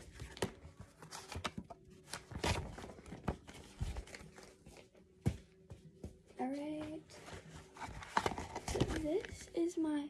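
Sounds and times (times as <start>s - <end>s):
papers rustling: 0.0s - 5.0s, 6.8s - 9.5s.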